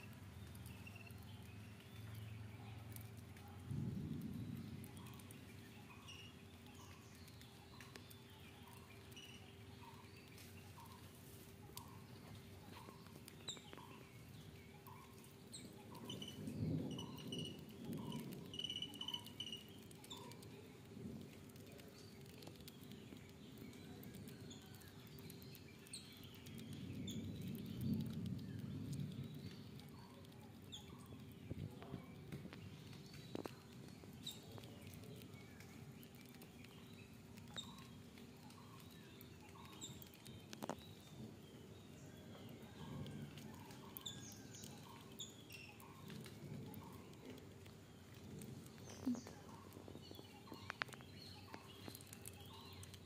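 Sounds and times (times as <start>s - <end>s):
birds chirping: 0.0s - 53.0s
faint small clicks: 50.5s - 53.0s.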